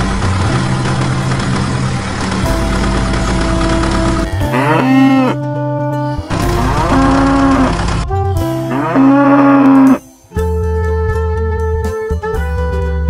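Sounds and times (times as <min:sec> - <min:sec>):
cow mooing: 0:04.2 - 0:05.4, 0:06.1 - 0:10.1.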